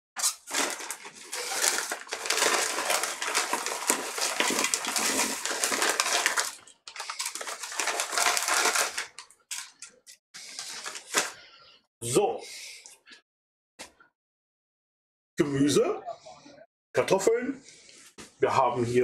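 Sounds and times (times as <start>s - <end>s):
plastic bag crinkling: 0.2s - 11.4s
food tumbling into metal pot: 0.7s - 6.6s.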